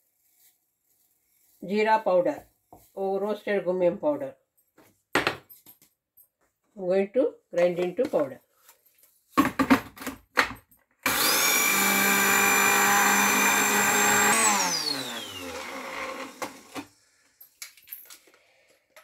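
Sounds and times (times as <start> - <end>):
spice grinder motor whine: 11.0 - 17.0.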